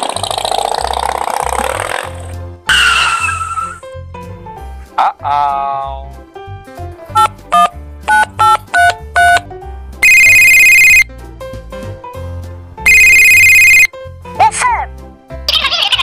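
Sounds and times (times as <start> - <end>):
background music: 0.0 - 16.0
short two-note beeps: 7.2 - 9.4, 10.0 - 11.0, 12.9 - 13.9
telephone ringing: 7.2 - 9.4, 10.0 - 11.1, 12.9 - 13.9.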